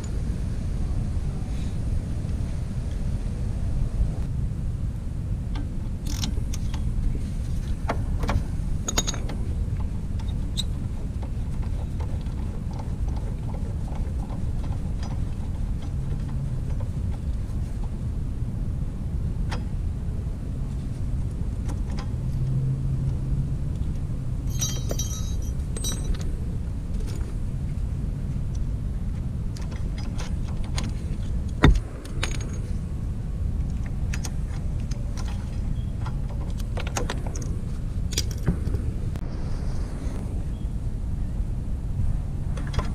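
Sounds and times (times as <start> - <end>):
loose metal jingling: 8.8 - 9.5, 24.4 - 26.4
metallic tool clicks and clinks: 24.5 - 26.3
low rumble: 30.6 - 42.9.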